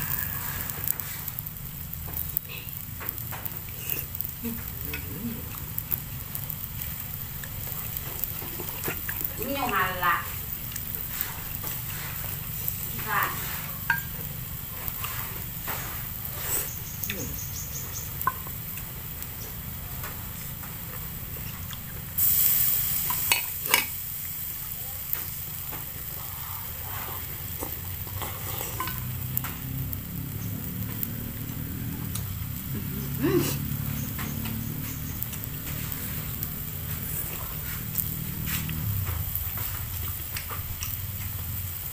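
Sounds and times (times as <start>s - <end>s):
loud hiss: 0.0s - 1.8s, 22.2s - 27.4s
broth sizzling and bubbling: 0.0s - 41.9s.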